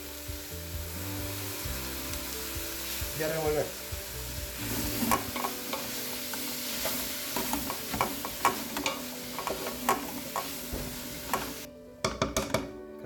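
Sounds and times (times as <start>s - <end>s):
vegetables sizzling in oil: 0.0s - 11.7s
spatula scraping and knocking pot: 4.7s - 6.0s, 6.8s - 12.7s.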